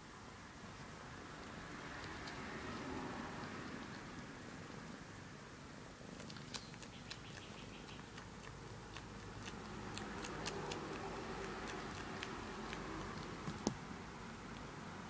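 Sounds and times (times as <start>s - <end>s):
suckling clicks: 13.1s - 13.8s.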